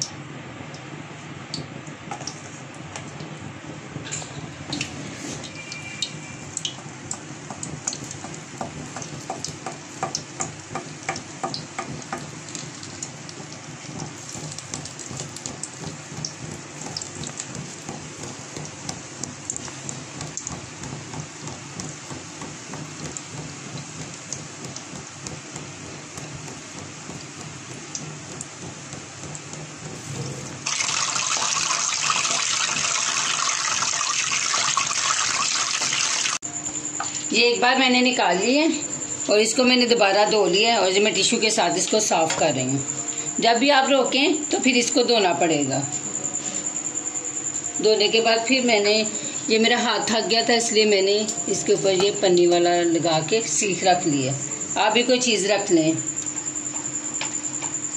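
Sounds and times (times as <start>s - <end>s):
batter sizzling in hot oil: 1.4s - 36.4s.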